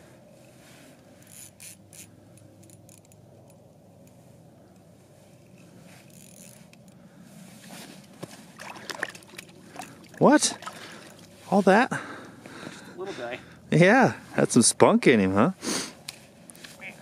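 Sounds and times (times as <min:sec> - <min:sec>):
fishing reel clicking and rattling: 0:01.2 - 0:03.6, 0:06.0 - 0:07.0.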